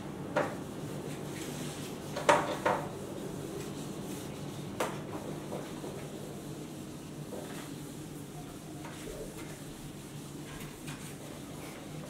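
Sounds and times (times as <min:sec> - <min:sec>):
eraser wiping whiteboard: 0:00.4 - 0:12.0.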